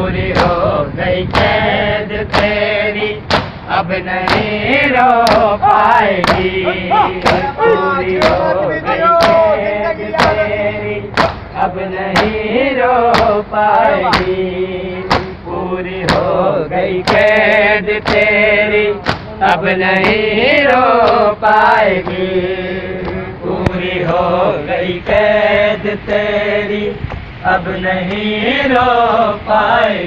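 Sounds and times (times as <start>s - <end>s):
male voices chanting a lament: 0.0s - 30.0s
men beating their chests: 2.3s - 12.5s, 13.1s - 14.4s, 15.1s - 15.4s, 17.0s - 21.3s.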